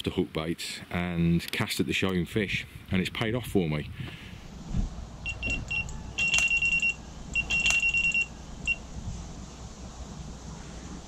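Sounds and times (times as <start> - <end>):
wind rumble on microphone: 2.3 - 5.9, 8.0 - 11.0
electronic bite alarm beeping: 5.2 - 8.9.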